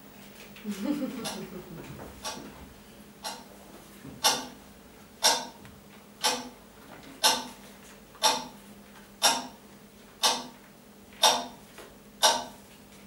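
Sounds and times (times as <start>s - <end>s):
clock ticking: 2.2s - 2.4s, 3.2s - 3.5s, 4.2s - 4.6s, 5.2s - 5.6s, 6.2s - 6.6s, 7.2s - 7.5s, 8.2s - 8.6s, 9.2s - 9.6s, 10.2s - 10.5s, 11.2s - 11.6s, 12.2s - 12.6s.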